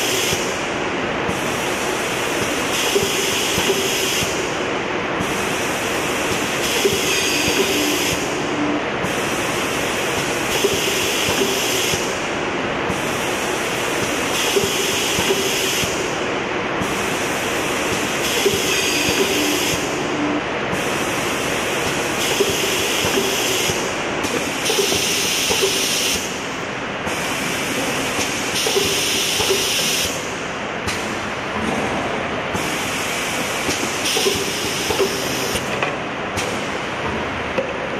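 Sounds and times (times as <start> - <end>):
machine hissing: 5.2 - 12.2, 20.7 - 26.4, 27.1 - 30.4, 32.5 - 35.7.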